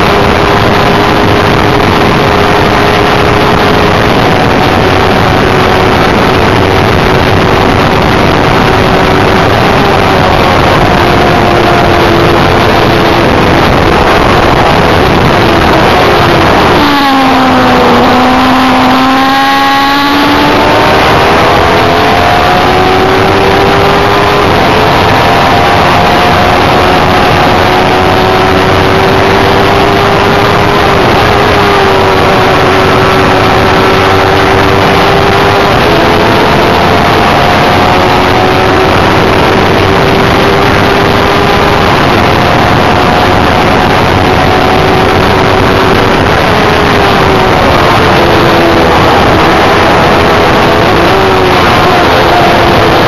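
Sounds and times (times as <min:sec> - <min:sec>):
racing car engine at high revs: 0:00.0 - 0:53.0
wind and road noise: 0:00.0 - 0:53.0.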